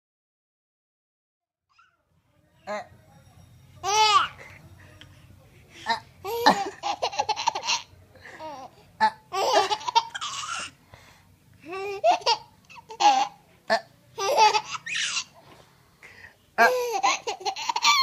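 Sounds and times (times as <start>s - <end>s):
baby laughing: 3.8s - 4.4s, 5.8s - 10.7s, 11.6s - 13.4s, 14.2s - 15.3s, 16.6s - 18.0s.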